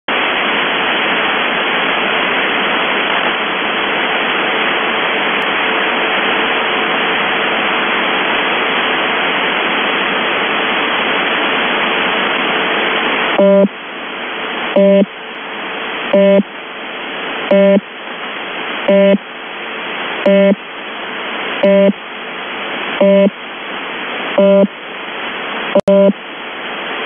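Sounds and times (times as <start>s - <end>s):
radio static hiss: 0.1s - 27.0s
faint steady tone: 16.2s - 16.5s, 18.9s - 19.2s, 20.3s - 20.6s, 21.6s - 22.0s, 23.0s - 23.4s, 24.4s - 24.7s.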